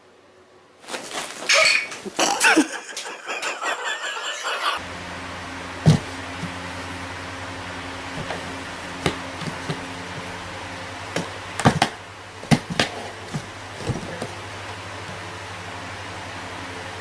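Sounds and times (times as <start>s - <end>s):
steady low hum: 2.3s - 17.0s
cardboard box knocking: 5.8s - 6.5s, 11.2s - 14.4s.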